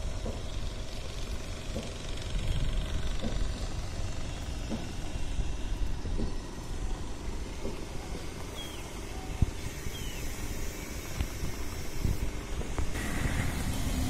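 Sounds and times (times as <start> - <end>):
low outdoor rumble of river: 0.0 - 14.0.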